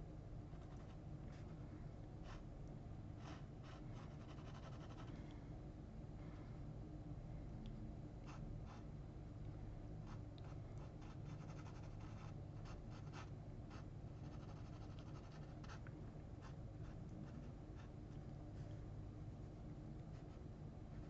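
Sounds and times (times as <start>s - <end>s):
steady low hum: 0.0s - 21.0s
pen scratching on paper: 3.2s - 5.1s, 10.1s - 15.8s.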